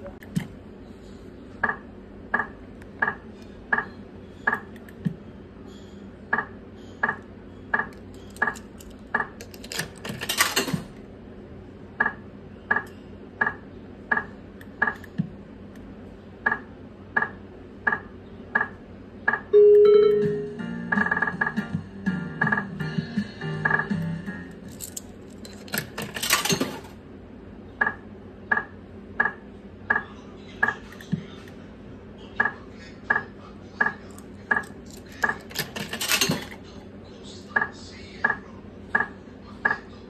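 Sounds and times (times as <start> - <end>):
held electronic win tone: 19.5 - 20.7
slot machine short high beeps: 19.6 - 20.6
noisy rattle: 24.6 - 27.0, 34.4 - 36.6.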